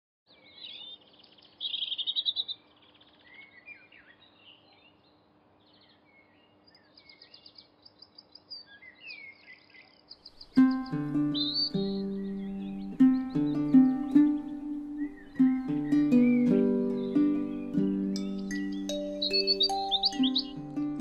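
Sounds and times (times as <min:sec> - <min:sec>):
songbirds chirping and trilling: 0:00.3 - 0:21.0
faint steady hum: 0:10.4 - 0:21.0
music with sudden chord: 0:10.6 - 0:21.0.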